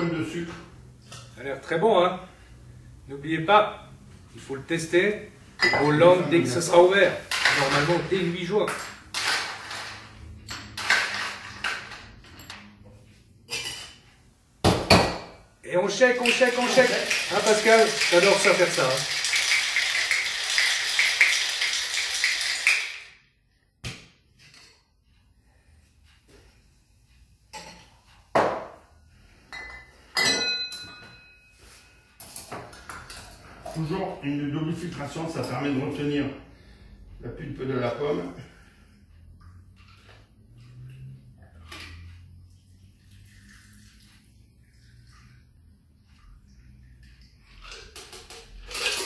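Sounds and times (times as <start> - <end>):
glass ringing: 5.6 - 6.0, 29.5 - 32.0
glasses knocking and clinking: 5.6 - 6.2, 29.6 - 31.4
bar utensils clinking and scraping: 5.6 - 12.8, 47.5 - 49.0.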